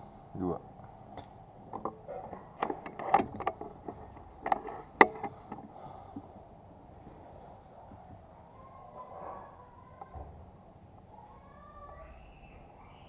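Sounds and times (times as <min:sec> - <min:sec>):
air rifle clicks and knocks: 0:01.2 - 0:05.7.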